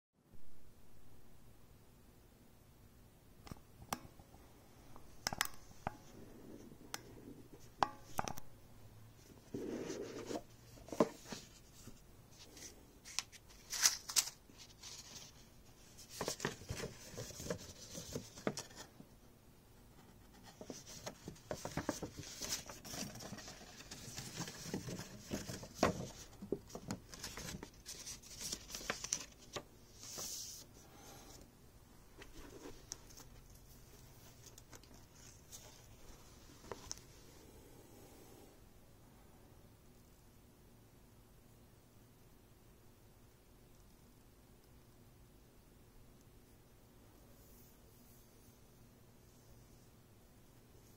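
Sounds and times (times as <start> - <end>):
paper rustling: 9.6 - 18.9, 20.4 - 30.7.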